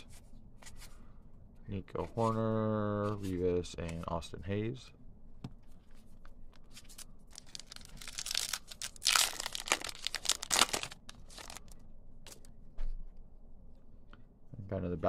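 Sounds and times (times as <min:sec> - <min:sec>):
foil wrapper and cards crinkling: 0:06.8 - 0:11.8.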